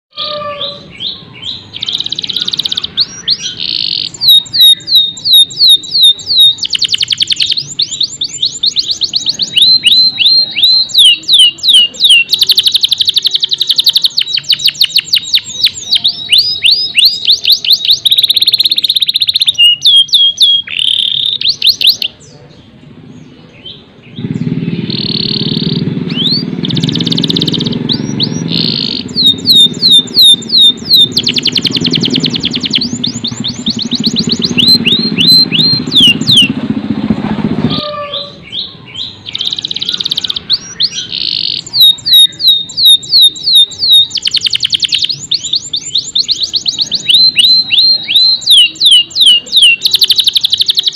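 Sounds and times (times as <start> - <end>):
canary singing: 0.1 - 50.9
low rumble: 22.9 - 38.7.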